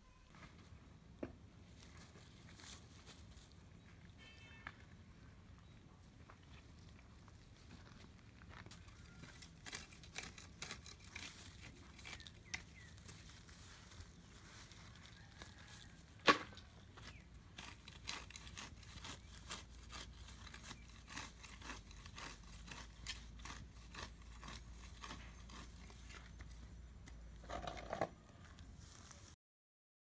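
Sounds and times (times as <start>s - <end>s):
rustle: 0.1s - 4.9s, 6.7s - 19.6s, 27.6s - 29.4s
cat chewing grass: 17.1s - 26.6s.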